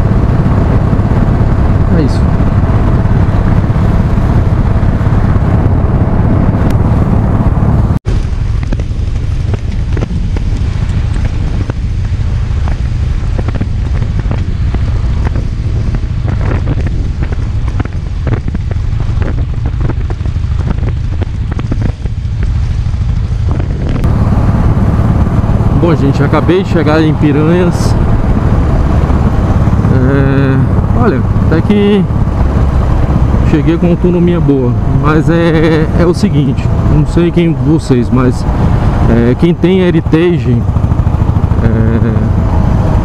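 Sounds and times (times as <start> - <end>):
motorcycle engine running: 0.0 - 43.0
wind buffeting microphone: 0.0 - 43.0.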